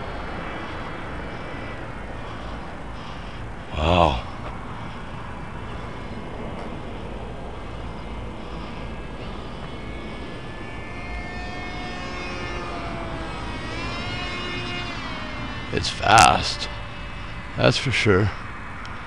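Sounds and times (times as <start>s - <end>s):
steady low rumble: 0.0s - 19.0s
electric model plane motor whining: 7.6s - 19.0s.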